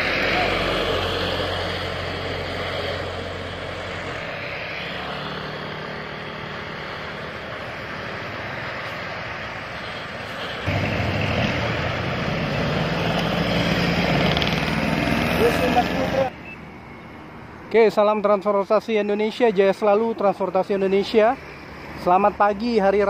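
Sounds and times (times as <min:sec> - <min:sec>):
heavy engine: 0:00.0 - 0:17.6
road traffic passing: 0:00.0 - 0:23.0.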